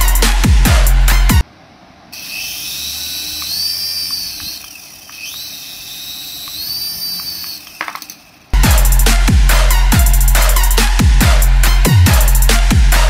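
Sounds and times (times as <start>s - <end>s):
toy helicopter rotor whirring: 2.1s - 8.6s
sharp clicks: 2.4s - 8.2s.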